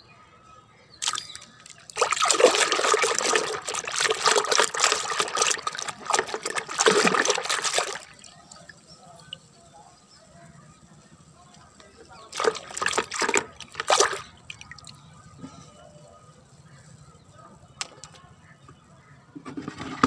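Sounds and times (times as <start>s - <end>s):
hand scrubbing toy in water: 1.0s - 9.3s, 12.2s - 15.0s
water sloshing in plastic bucket: 1.0s - 9.4s, 11.6s - 15.1s.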